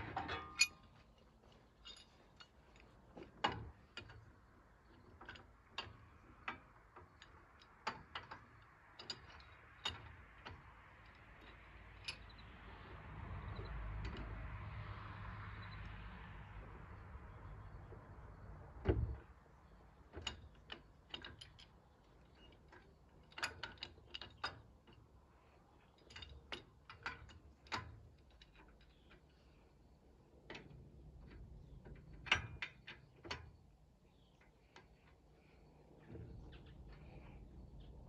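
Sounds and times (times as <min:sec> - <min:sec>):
hand tools clicking and clanking: 0:00.0 - 0:12.4.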